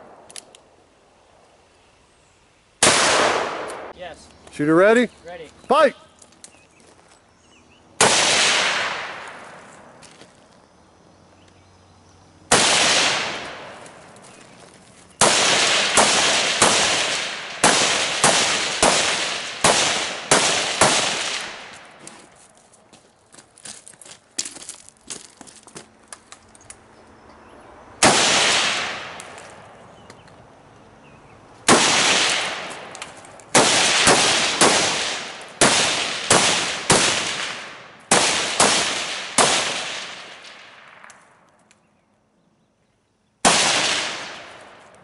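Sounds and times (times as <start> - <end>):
gunshots: 2.8 - 3.9, 8.0 - 9.6, 12.5 - 13.8, 15.2 - 21.9, 28.0 - 29.4, 31.7 - 41.0, 43.4 - 44.8.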